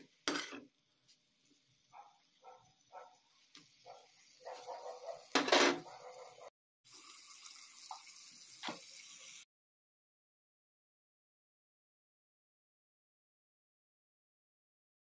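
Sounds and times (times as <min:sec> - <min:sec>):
potatoes sizzling in oil: 0:00.0 - 0:05.8, 0:06.9 - 0:09.5.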